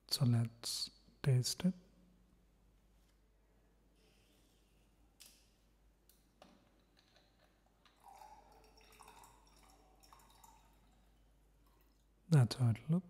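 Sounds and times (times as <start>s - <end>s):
juice pouring into a glass: 6.8s - 12.2s.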